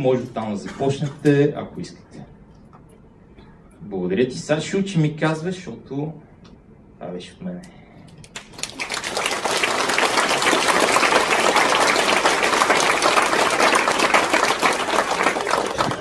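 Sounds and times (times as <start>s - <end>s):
audience applauding: 8.4s - 16.0s.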